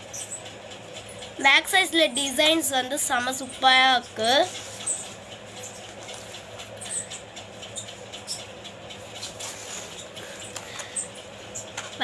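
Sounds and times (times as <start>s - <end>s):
faint background hum: 0.0s - 12.0s
cardboard model ticks and scrapes: 4.2s - 11.0s.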